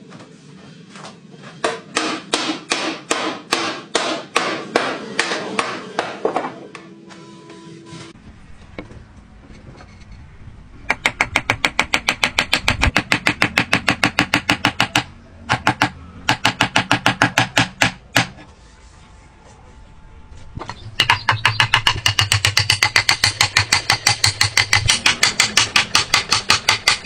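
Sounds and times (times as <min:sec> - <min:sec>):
hammer tapping wood: 0:10.9 - 0:18.4, 0:20.6 - 0:27.0.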